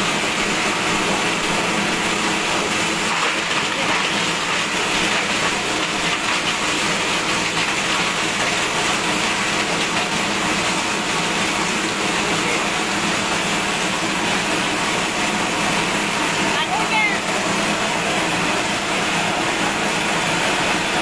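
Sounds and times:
plastic crusher shredding plastic: 0.0s - 21.0s.

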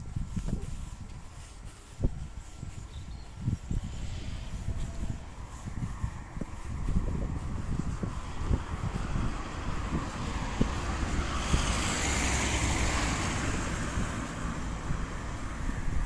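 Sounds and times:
wind rumble on microphone: 0.0s - 16.0s
car passing: 3.6s - 16.0s.

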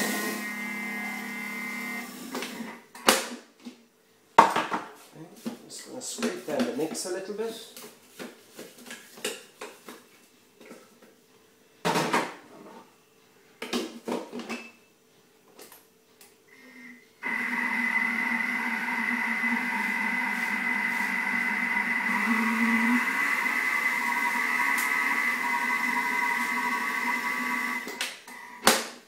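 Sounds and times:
mixer motor whining: 0.0s - 2.8s, 17.2s - 28.7s.

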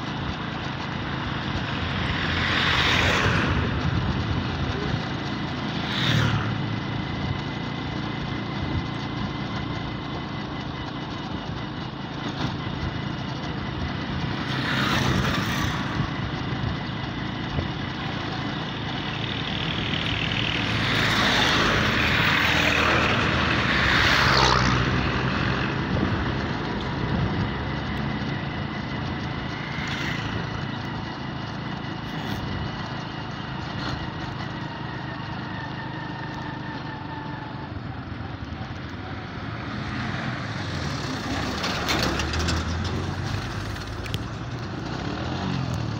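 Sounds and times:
vehicle engine running: 0.0s - 45.9s
rushes of noise: 1.2s - 8.2s, 13.9s - 33.2s.

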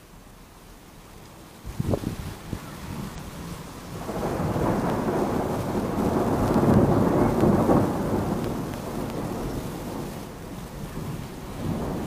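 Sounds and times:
steady rain: 0.0s - 12.0s
thunder rolling: 3.9s - 12.0s.

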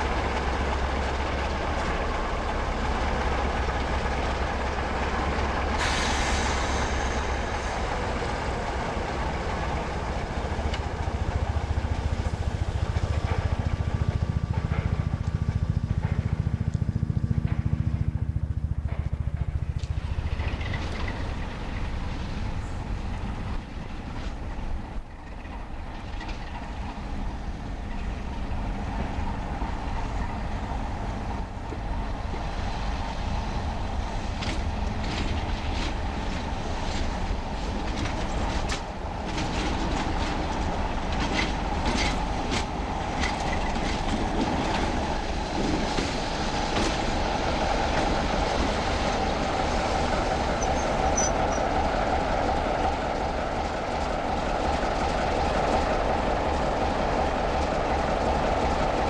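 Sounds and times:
diesel locomotive engine running: 0.0s - 59.0s
wheel clicks over rail joints: 34.2s - 48.3s.

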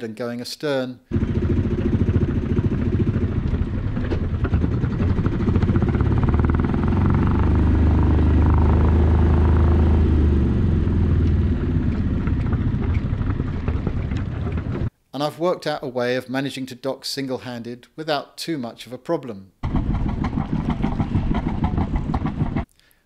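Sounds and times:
boat engine running: 1.1s - 14.9s, 19.6s - 22.6s.

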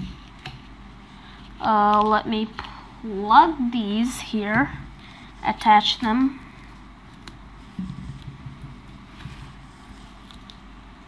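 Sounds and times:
paper handling on whiteboard: 5.6s - 10.6s.

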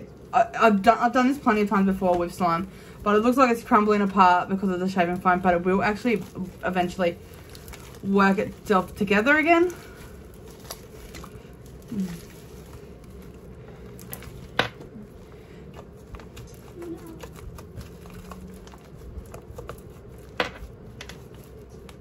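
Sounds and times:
slime squishing and crackling: 0.6s - 22.0s.

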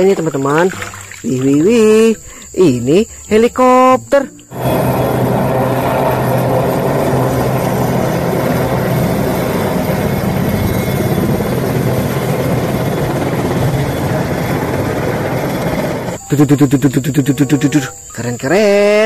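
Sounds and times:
helicopter rotor and turbines: 4.5s - 16.2s
low hum: 4.5s - 16.3s.

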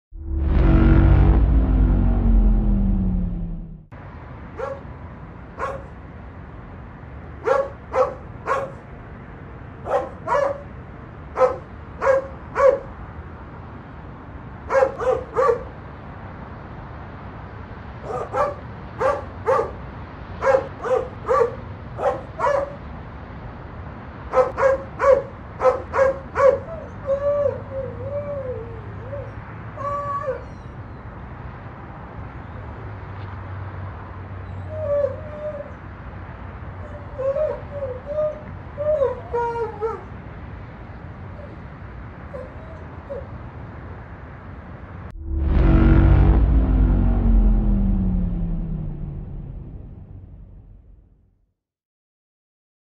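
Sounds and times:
dog barking: 4.6s - 4.9s, 5.6s - 5.9s, 7.4s - 8.8s, 9.8s - 10.7s, 11.4s - 12.9s, 14.7s - 15.7s, 18.0s - 19.8s, 20.4s - 22.8s, 24.3s - 26.8s.

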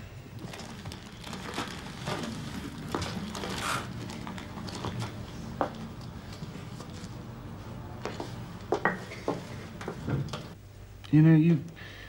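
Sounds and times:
paper rustling and crinkling: 0.4s - 5.2s.

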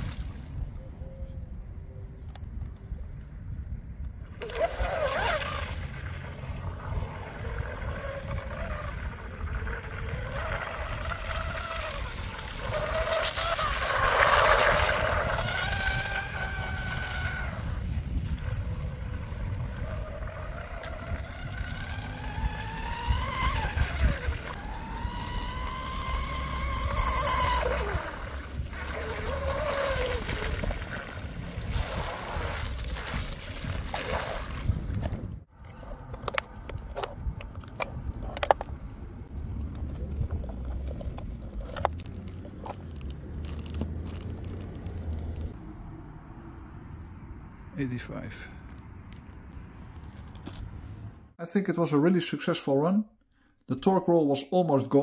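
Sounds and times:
wind rumble on microphone: 0.0s - 51.3s
electric motor and propeller whining: 4.2s - 46.0s.

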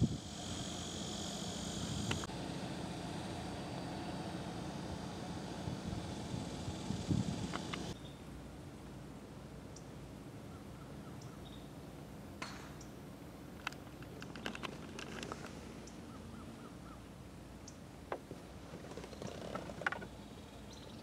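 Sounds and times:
small clicks: 7.5s - 8.0s, 13.6s - 16.0s
faint bird chirps: 7.9s - 8.3s, 9.7s - 11.8s, 20.1s - 21.0s
golf club striking ball: 12.4s - 12.8s.

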